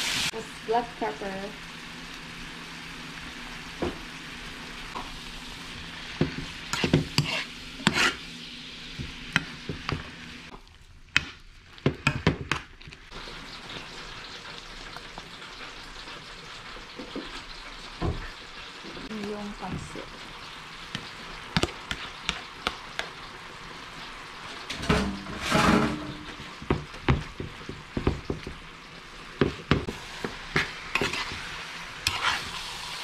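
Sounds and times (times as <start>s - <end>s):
food sizzling in a frying pan: 0.0s - 33.0s
metal spoon scraping a pan: 6.6s - 8.3s, 24.6s - 26.4s, 30.2s - 32.6s.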